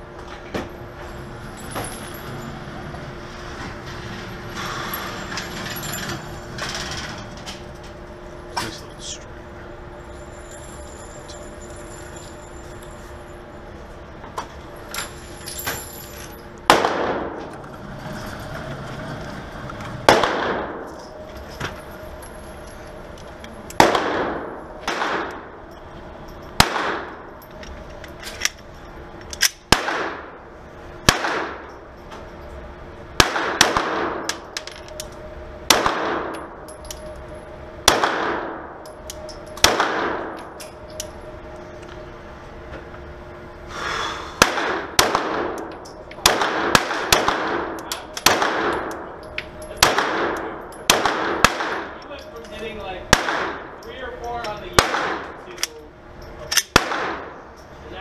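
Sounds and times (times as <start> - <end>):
pistol shots echoing: 16.7 - 17.4, 20.0 - 20.9, 23.8 - 25.5, 26.6 - 27.3, 29.7 - 30.4, 31.0 - 31.7, 33.2 - 34.4, 35.7 - 36.5, 37.8 - 38.8, 39.6 - 40.6, 44.4 - 52.0, 53.1 - 53.8, 54.8 - 55.4, 56.6 - 57.4.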